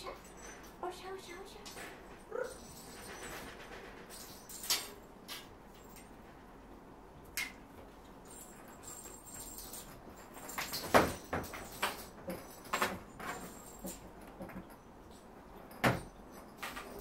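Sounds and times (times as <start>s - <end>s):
cats knocking and scuffing on floor: 9.4s - 14.8s.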